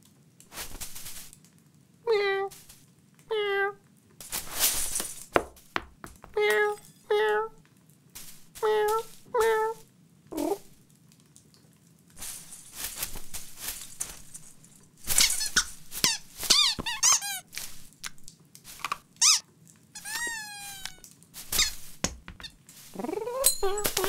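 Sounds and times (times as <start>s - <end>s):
cat rustling through tree branches: 0.5s - 1.4s, 4.2s - 5.4s, 8.2s - 9.6s, 12.2s - 18.8s, 20.4s - 22.0s, 22.6s - 24.0s
sharp taps: 5.4s - 6.4s
high squeaky toy chirps: 15.1s - 17.5s, 19.2s - 19.4s, 20.0s - 21.8s
long falling squeak: 20.0s - 21.0s.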